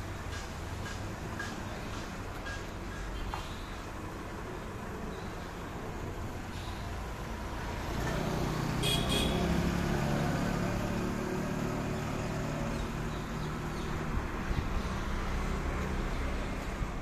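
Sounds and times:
truck engine passing: 6.2s - 17.0s.

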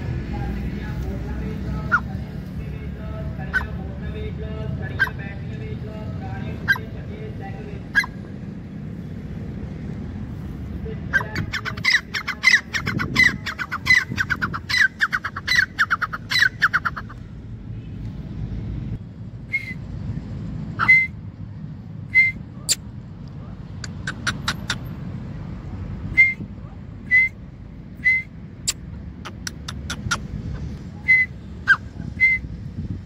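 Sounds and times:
francolin calling: 11.1s - 17.2s.

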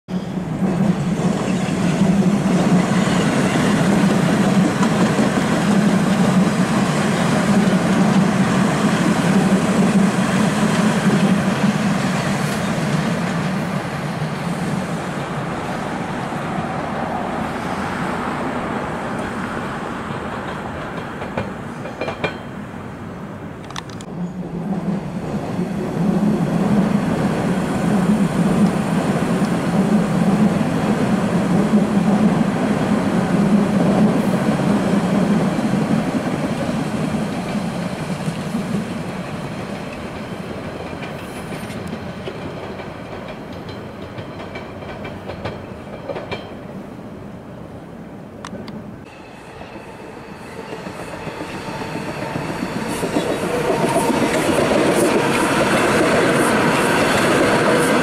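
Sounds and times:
train wheels rumbling on rails: 0.1s - 22.9s, 23.5s - 46.8s, 48.4s - 58.0s.

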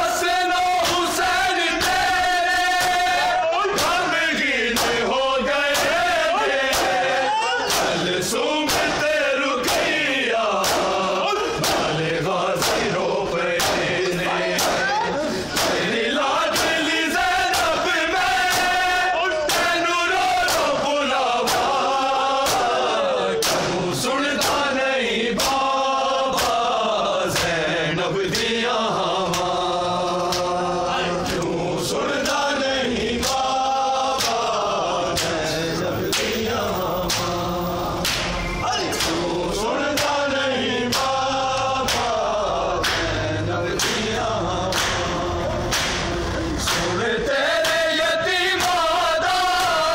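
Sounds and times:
men chanting in unison: 0.0s - 49.9s
hand slaps on chests: 4.7s - 5.1s, 5.7s - 6.0s, 6.6s - 8.0s, 8.6s - 11.0s, 11.6s - 12.0s, 12.6s - 13.0s, 13.6s - 14.0s, 14.6s - 14.9s, 15.5s - 16.8s, 17.5s - 17.8s, 18.5s - 18.8s, 19.5s - 19.8s, 20.4s - 20.8s, 21.4s - 21.8s, 22.4s - 22.8s, 23.4s - 23.8s, 24.4s - 24.7s, 25.4s - 25.7s, 26.3s - 26.7s, 27.3s - 27.6s, 30.3s - 30.5s, 34.2s - 35.4s, 36.1s - 36.4s, 37.1s - 37.4s, 38.0s - 39.3s, 39.9s - 40.2s, 40.9s - 42.2s, 42.8s - 43.2s, 43.8s - 44.1s, 44.7s - 45.1s, 45.7s - 47.0s, 47.6s - 47.9s.

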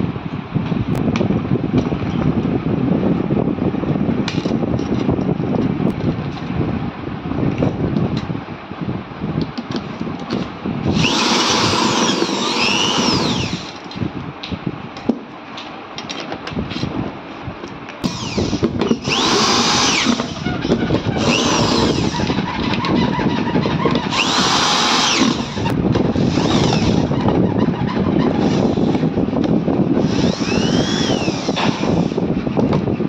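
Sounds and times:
drill driver motor whine: 10.8s - 13.8s, 18.0s - 29.0s, 30.0s - 32.2s
clicks and knocks of parts handled: 13.7s - 16.9s.

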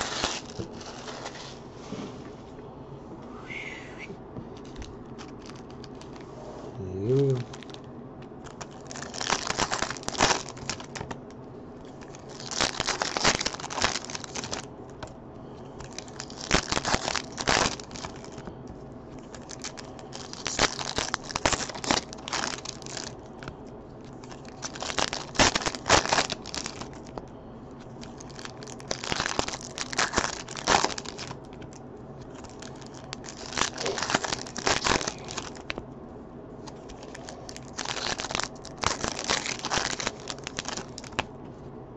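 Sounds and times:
foil wrappers tearing and crinkling: 0.0s - 1.5s, 5.2s - 6.2s, 7.2s - 7.8s, 8.4s - 11.2s, 11.8s - 15.1s, 15.8s - 18.5s, 19.1s - 27.2s, 27.8s - 35.8s, 36.6s - 41.3s.

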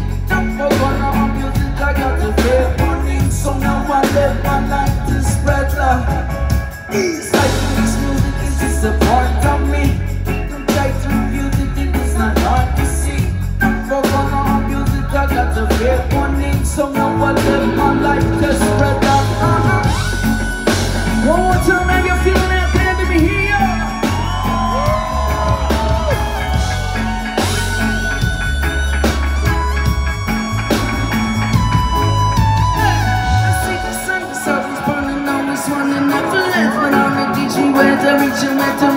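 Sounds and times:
reggae rock band playing: 0.0s - 38.9s.

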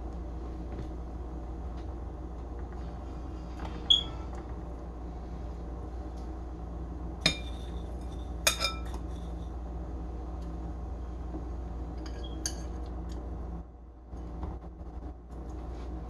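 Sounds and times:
steady low hum: 0.0s - 16.0s
dishes and utensils clinking: 7.2s - 9.2s.

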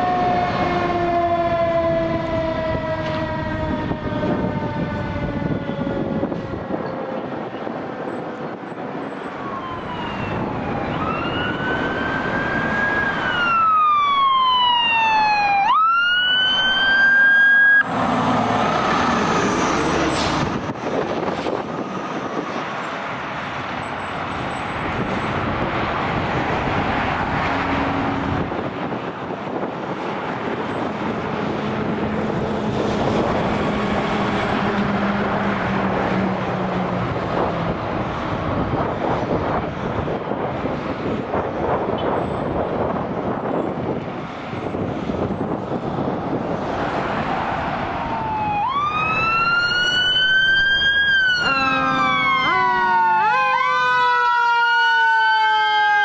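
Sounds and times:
fire truck siren wailing: 0.0s - 56.0s
truck engine and road noise: 0.0s - 56.0s.

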